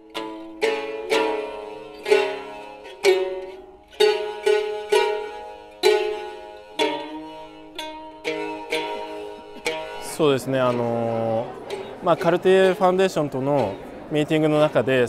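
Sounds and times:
shamisen plucked notes: 0:00.0 - 0:15.0.

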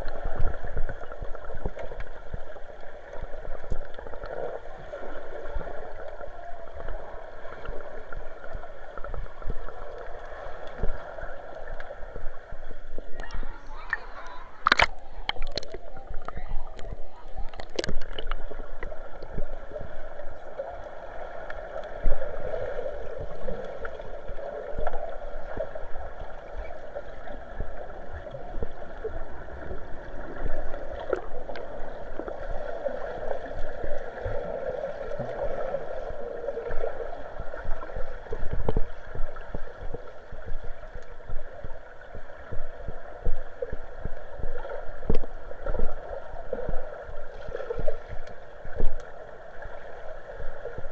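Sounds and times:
muffled underwater water rush: 0:00.0 - 0:50.9
water splash: 0:13.8 - 0:15.8.

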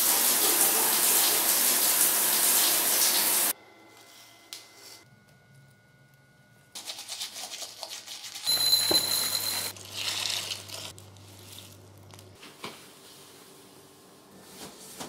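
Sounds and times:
cereal crackling: 0:09.8 - 0:12.4.

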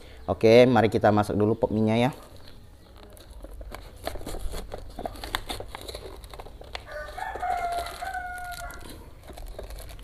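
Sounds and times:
packaging crinkling: 0:02.3 - 0:10.0
rooster crowing: 0:06.9 - 0:09.0.

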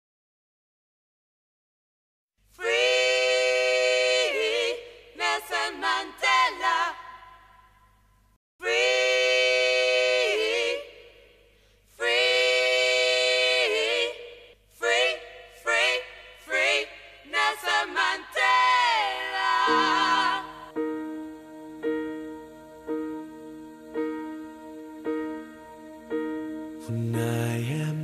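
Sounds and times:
soft piano chords: 0:19.7 - 0:28.0
solo voice singing: 0:21.2 - 0:28.0.

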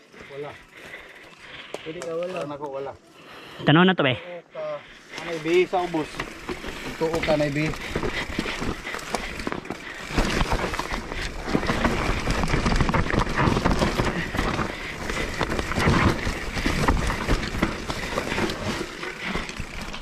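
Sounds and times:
bike tyres on dirt: 0:00.0 - 0:03.6, 0:04.6 - 0:20.0
bike rattling over bumps: 0:05.1 - 0:20.0.

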